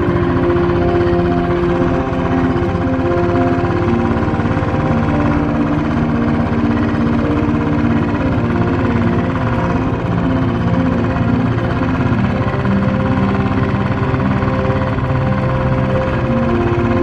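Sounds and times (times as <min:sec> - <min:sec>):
motorcycle engine running: 0:00.0 - 0:17.0
whining tones changing pitch: 0:00.0 - 0:17.0.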